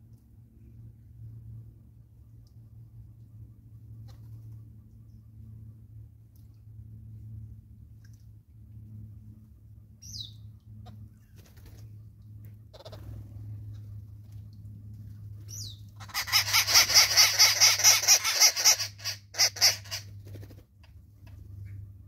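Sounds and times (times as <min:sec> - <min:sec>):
babblers harsh cackling chatter: 0:16.0 - 0:20.0.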